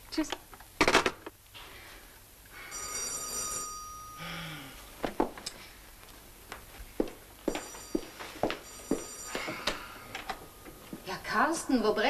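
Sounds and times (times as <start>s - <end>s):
electric doorbell ringing: 2.6s - 4.4s, 7.5s - 10.9s.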